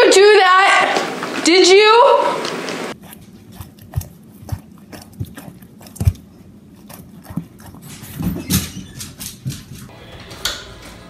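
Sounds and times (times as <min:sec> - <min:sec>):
dog chewing bread: 0:03.0 - 0:09.9.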